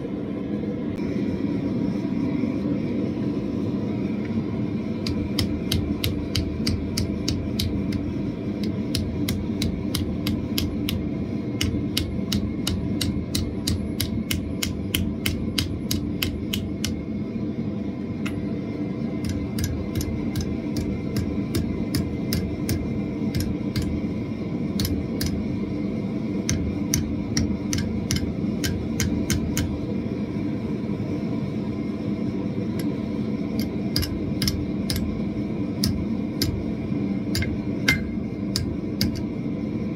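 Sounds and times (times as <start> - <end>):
gas forge roaring: 0.0 - 39.9
hammer striking steel on anvil: 5.0 - 11.0, 11.6 - 17.0, 19.2 - 24.0, 26.4 - 29.8, 33.6 - 35.1, 37.4 - 39.3.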